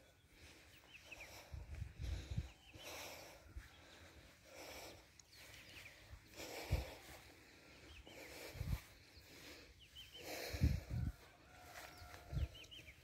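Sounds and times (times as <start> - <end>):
person breathing: 0.0 - 12.9
dull footsteps: 0.0 - 13.0
small bird chirps: 5.0 - 6.3, 7.8 - 10.4, 11.5 - 13.0.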